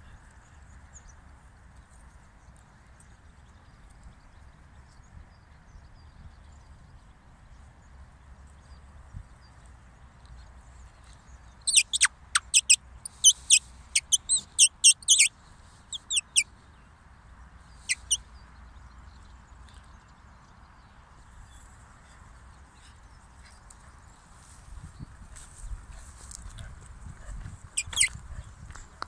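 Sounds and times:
faint steady background noise: 0:00.0 - 0:29.0
linnets chirping: 0:11.6 - 0:15.3, 0:15.9 - 0:16.5, 0:17.8 - 0:18.2, 0:27.8 - 0:28.1.

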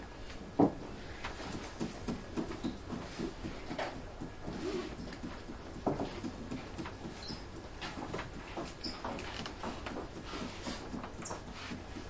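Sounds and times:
faint room hum: 0:00.0 - 0:12.0
rustles and shuffles: 0:00.1 - 0:12.0.

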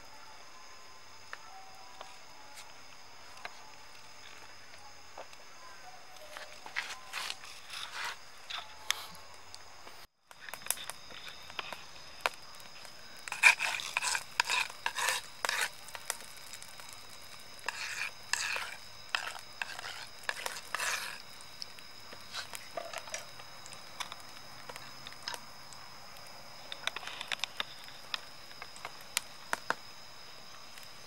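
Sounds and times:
faint steady high tone: 0:00.0 - 0:10.1
oil scraping and sizzling on stone: 0:06.3 - 0:09.3, 0:10.3 - 0:31.0.

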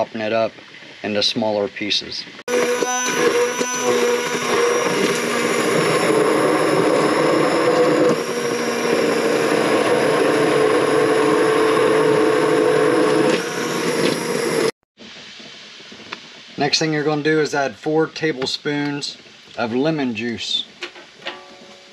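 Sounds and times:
immersion blender motor humming: 0:02.5 - 0:14.8
thick mixture churning: 0:03.2 - 0:14.0.

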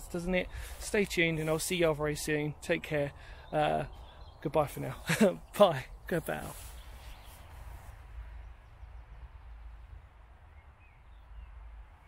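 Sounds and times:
low steady rumble: 0:06.9 - 0:12.0.

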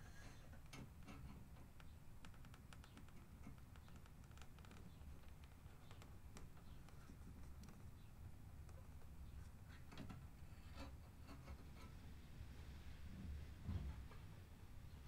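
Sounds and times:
faint light clicks and taps: 0:00.5 - 0:10.2.

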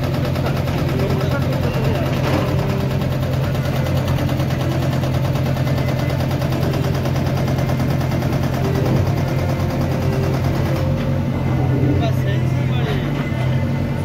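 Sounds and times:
diesel engine clattering: 0:00.0 - 0:14.0.

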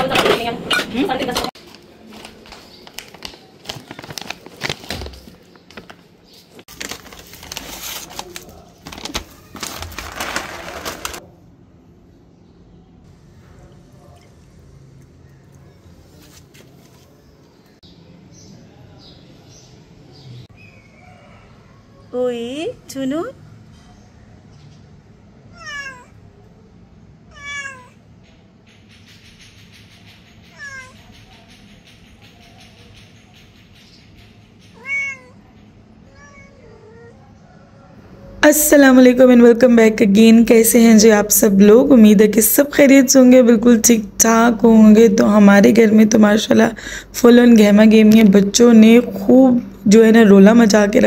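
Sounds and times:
plastic bag crinkling: 0:01.6 - 0:11.2
dry kibble rattling into bowl: 0:06.7 - 0:11.2
cat meowing: 0:25.5 - 0:26.2, 0:27.3 - 0:28.0, 0:30.5 - 0:31.0, 0:34.7 - 0:37.3.

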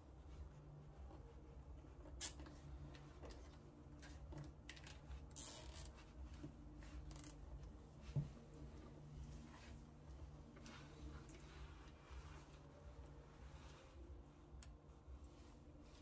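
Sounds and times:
cables rubbing and rustling: 0:00.1 - 0:16.0.

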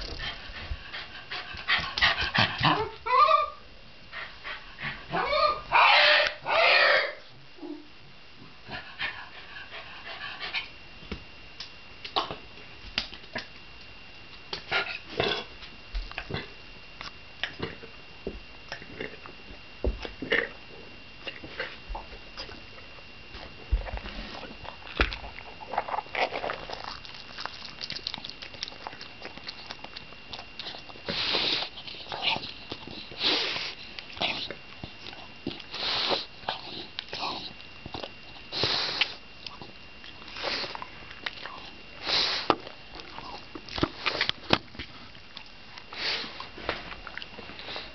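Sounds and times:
dog chewing and licking: 0:23.4 - 0:35.8, 0:36.4 - 0:41.7, 0:42.5 - 0:47.7
dog sniffing: 0:30.6 - 0:34.5, 0:35.5 - 0:37.5.

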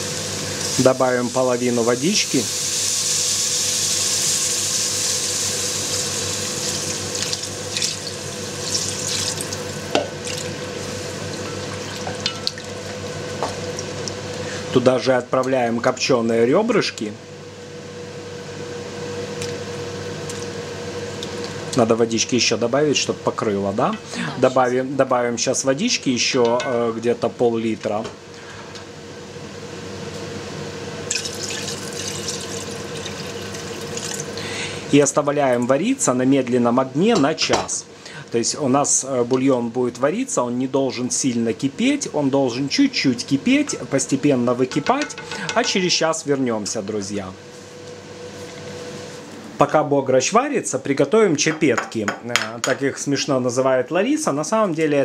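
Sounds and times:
steady hiss: 0:00.0 - 0:07.8
water pouring into hot pot: 0:06.6 - 0:10.5, 0:31.1 - 0:34.3
faint hum: 0:09.4 - 0:52.2.

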